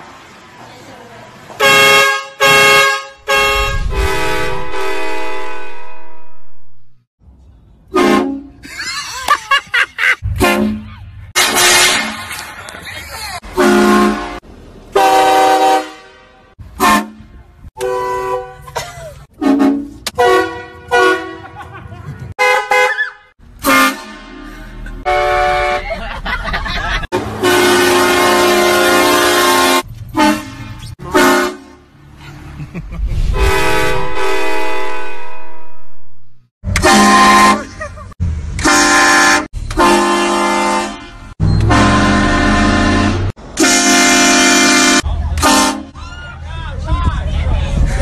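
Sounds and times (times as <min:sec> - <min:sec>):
train horns blasting: 0:01.6 - 0:06.8, 0:07.9 - 0:08.6, 0:10.3 - 0:12.2, 0:13.5 - 0:18.7, 0:19.3 - 0:21.6, 0:22.3 - 0:23.0, 0:23.6 - 0:25.9, 0:27.1 - 0:31.9, 0:33.3 - 0:36.1, 0:36.7 - 0:37.8, 0:38.6 - 0:46.0.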